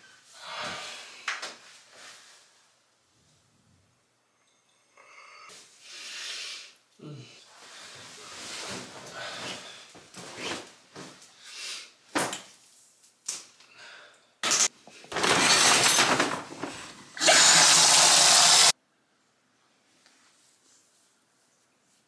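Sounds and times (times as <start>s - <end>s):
clothing rustling: 7.5s - 11.3s
water pouring from bathtub spout: 17.2s - 18.7s.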